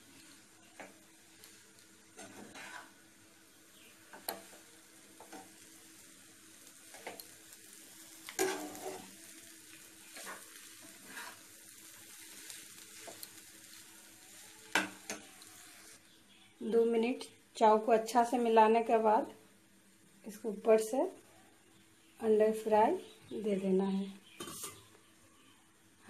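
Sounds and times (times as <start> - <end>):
noodles sizzling: 0.0 - 26.0
spatula scraping a pan: 2.1 - 3.0, 8.3 - 9.2, 10.1 - 11.5, 24.4 - 24.8.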